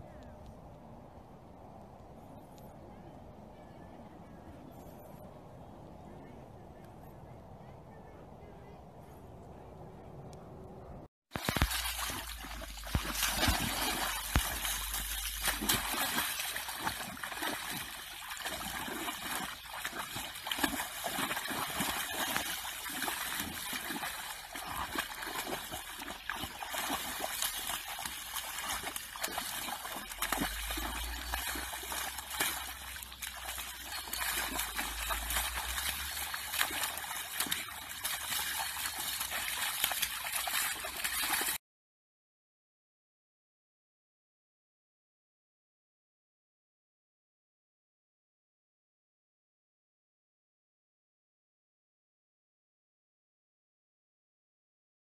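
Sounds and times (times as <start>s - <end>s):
dog splashing in puddle: 11.4s - 41.6s.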